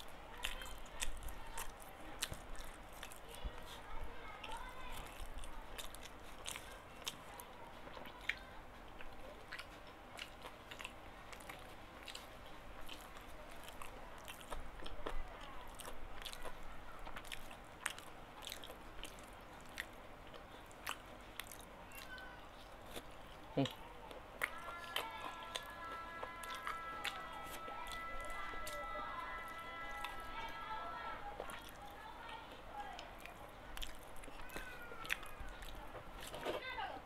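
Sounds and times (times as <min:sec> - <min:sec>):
person chewing food: 0:00.0 - 0:36.8
mouth clicks and smacks: 0:05.1 - 0:24.6.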